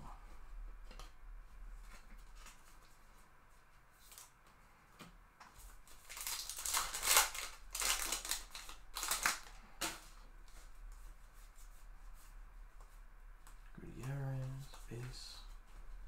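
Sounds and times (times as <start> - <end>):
cards rustling: 5.6 - 10.7
wrapper crinkling and tearing: 5.9 - 9.6.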